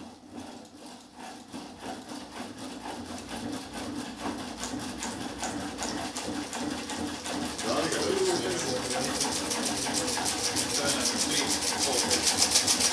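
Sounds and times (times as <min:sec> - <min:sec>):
fast even rattle of clicks: 0:04.3 - 0:12.9.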